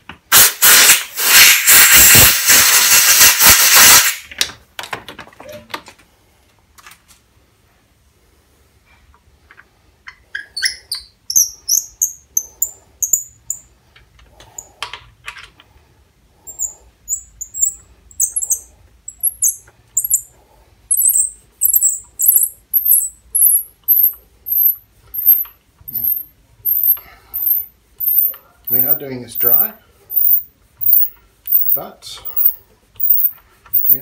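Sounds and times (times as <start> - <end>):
hand tap squeaking while cutting threads: 20.9 - 34.0.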